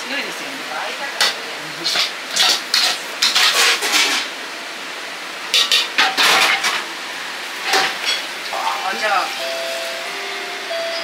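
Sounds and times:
metal utensils clanking on cookware: 1.2 - 4.3, 5.5 - 6.9, 7.6 - 8.8.

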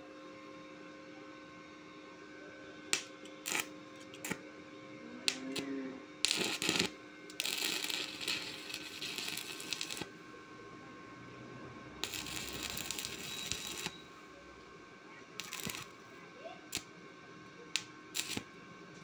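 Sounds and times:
faint steady hum: 0.0 - 19.0
welding arc crackling: 2.9 - 4.4, 6.2 - 10.1, 12.0 - 14.0, 15.4 - 16.0, 16.7 - 16.9, 17.8 - 18.5
welding electrode clicking on steel: 2.9 - 4.4, 6.2 - 10.1, 12.0 - 13.9, 15.4 - 15.9, 17.8 - 18.4.

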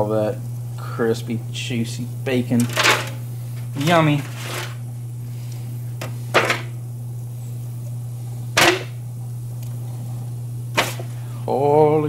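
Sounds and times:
steady low hum: 0.0 - 12.0
food dropped into foil pan: 2.6 - 3.2, 6.3 - 6.7, 8.6 - 9.0, 10.7 - 11.1.

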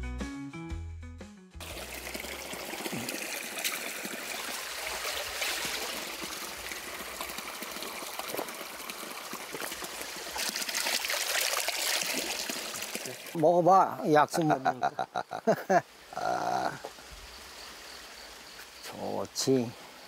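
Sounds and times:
water pouring onto rocks: 1.6 - 13.4
shallow stream running: 1.6 - 20.0.

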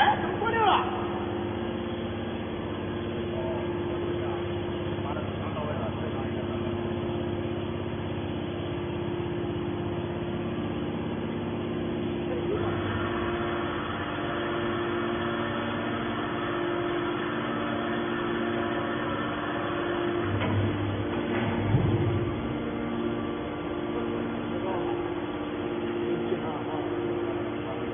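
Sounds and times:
hydraulic pump motor humming: 0.0 - 27.9.

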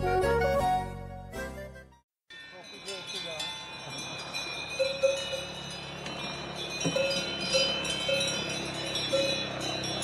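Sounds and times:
cow bells clanking: 2.3 - 10.0.

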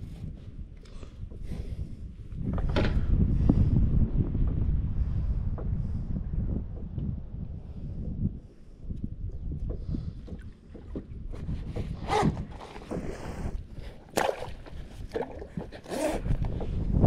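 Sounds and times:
wind rumbling on microphone: 0.0 - 17.0
water slapping kayak hull: 9.6 - 17.0.

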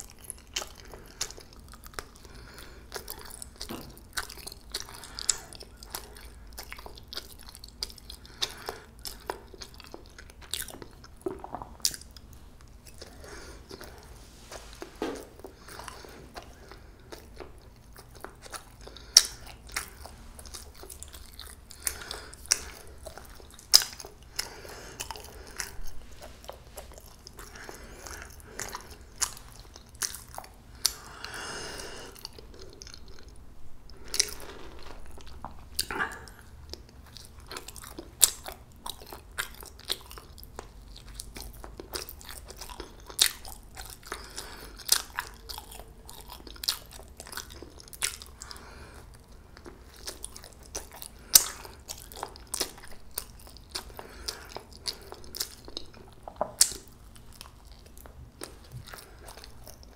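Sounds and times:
person chewing with mouth clicks: 0.0 - 59.9.

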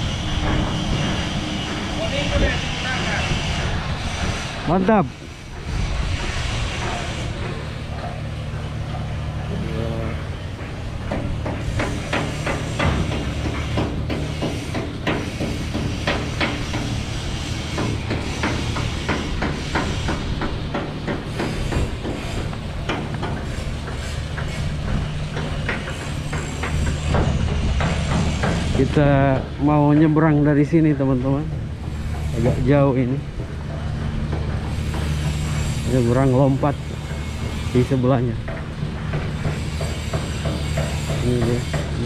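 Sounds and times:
low machinery hum: 0.0 - 42.0
hammering on metal: 10.1 - 42.0.

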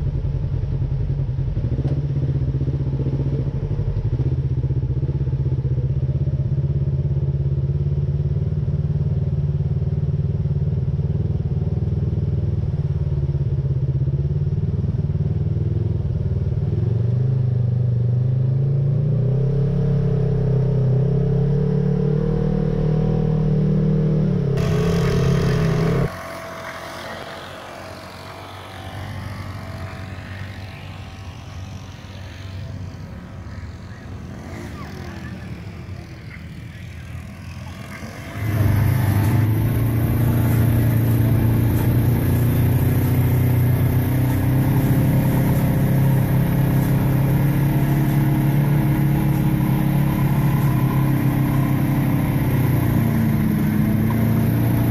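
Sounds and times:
open-air background sound: 18.2 - 54.9
vehicle engine running: 24.4 - 54.9.

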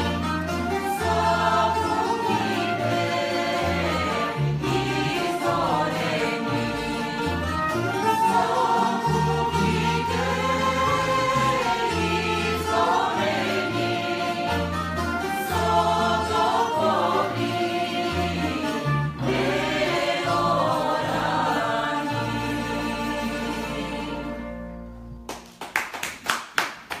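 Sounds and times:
mixed choir singing in harmony: 0.0 - 24.6
plucked string instruments: 0.0 - 25.4
scattered clapping: 25.3 - 27.0.

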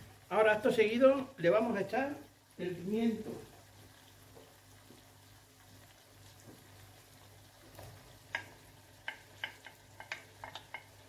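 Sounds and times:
onions sizzling in oil: 0.0 - 11.0
wooden spoon knocking: 8.3 - 11.0.

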